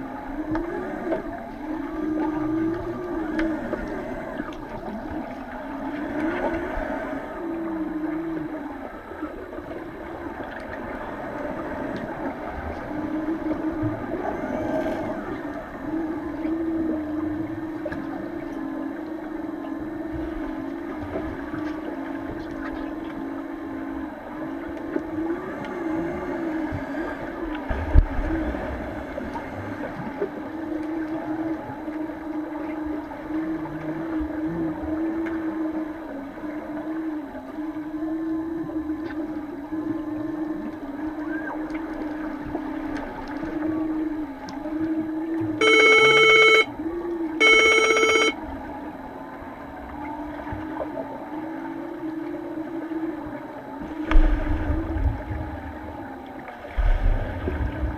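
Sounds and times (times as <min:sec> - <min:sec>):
low underwater hum: 0:00.0 - 0:57.9
underwater signal horn blasts: 0:44.7 - 0:49.0.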